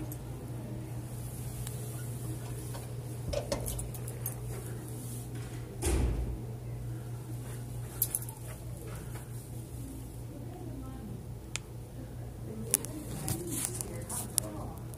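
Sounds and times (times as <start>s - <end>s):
room hum: 0.0s - 14.9s.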